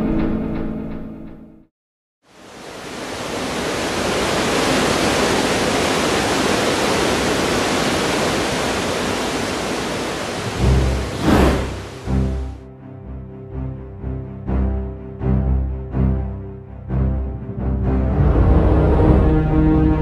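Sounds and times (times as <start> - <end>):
water rushing from outlet: 2.3 - 12.6.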